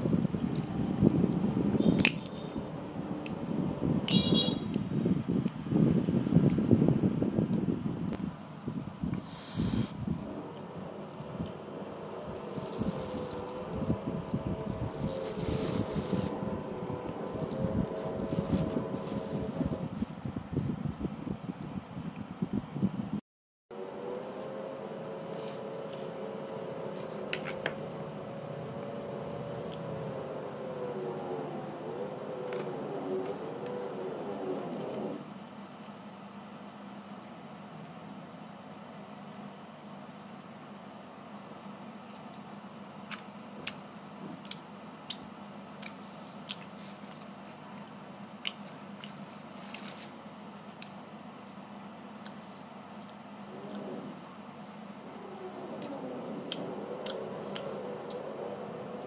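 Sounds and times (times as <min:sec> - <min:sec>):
person chewing with mouth clicks: 0:45.8 - 0:47.2, 0:48.4 - 0:49.3.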